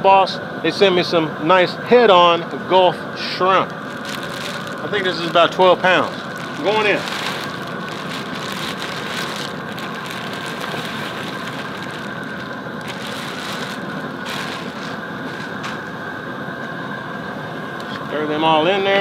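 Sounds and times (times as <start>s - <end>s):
gas burner running: 2.1s - 18.2s
plastic bag crinkling: 3.6s - 15.8s.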